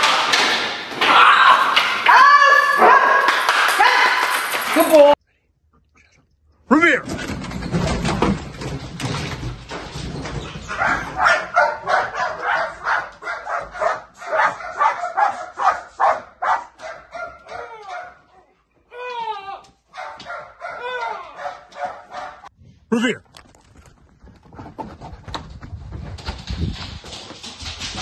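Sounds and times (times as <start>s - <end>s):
dog barking rapidly: 10.6s - 18.2s, 19.9s - 22.5s.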